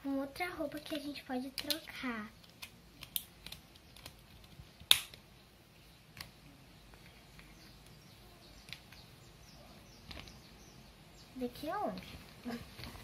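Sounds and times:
plastic doll clicks: 0.8s - 5.2s.

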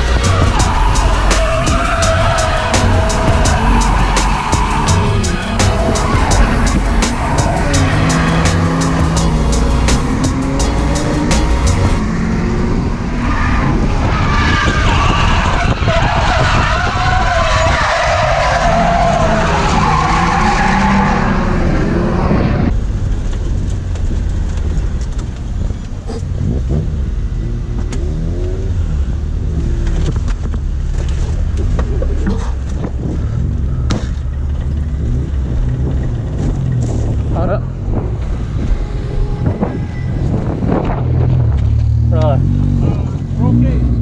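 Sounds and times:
tyres squealing: 0.0s - 12.0s
car engine running hard: 0.0s - 44.0s.

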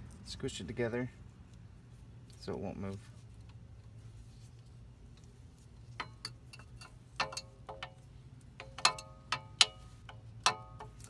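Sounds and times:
metal brake parts clinking: 5.8s - 11.0s
metal clicks: 6.0s - 11.0s.

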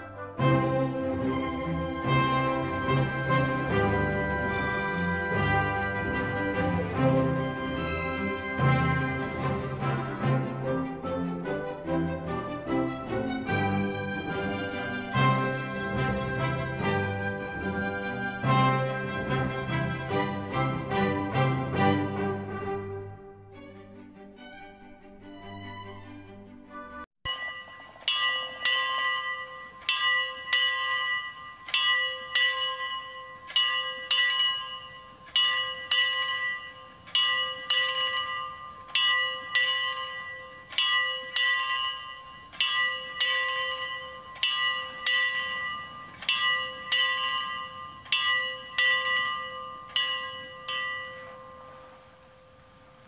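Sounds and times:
church bell ringing: 1.1s - 10.0s, 27.2s - 53.0s.

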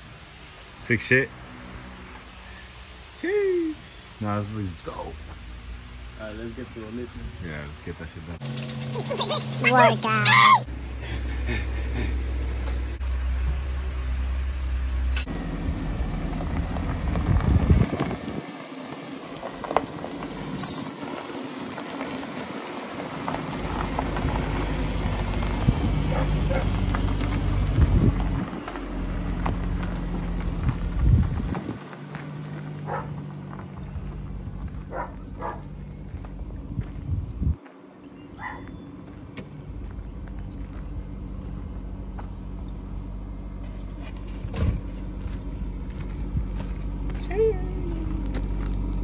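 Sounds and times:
car engine revving: 8.2s - 18.6s
tyres crunching over gravel: 8.4s - 10.6s, 15.5s - 49.0s.

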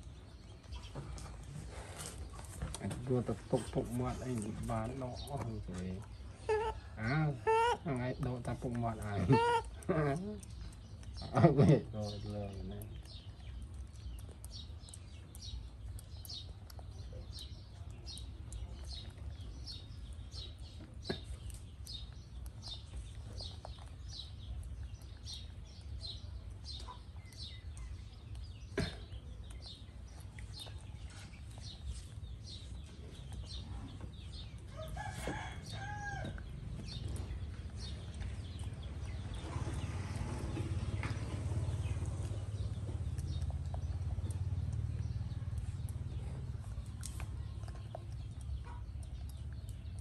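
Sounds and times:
rooster crowing: 34.7s - 36.4s.

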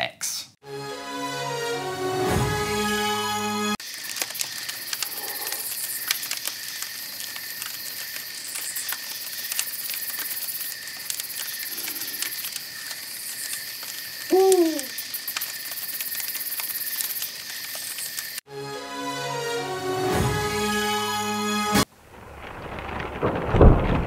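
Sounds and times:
campfire crackling and popping: 3.8s - 18.4s, 21.9s - 24.0s
owl hooting: 14.3s - 15.0s.

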